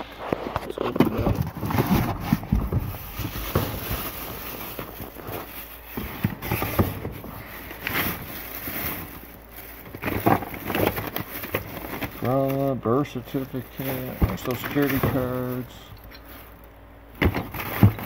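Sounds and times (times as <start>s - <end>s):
paper rustling: 0.3s - 12.8s
plastic bag crinkling: 0.6s - 18.0s
small knocks in cardboard box: 17.2s - 18.0s.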